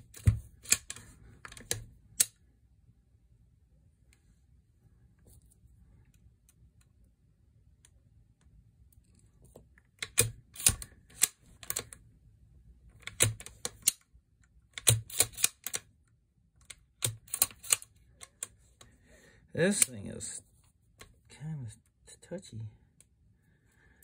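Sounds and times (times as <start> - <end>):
rifle action metallic clicks: 14.8 - 15.8, 16.6 - 18.4.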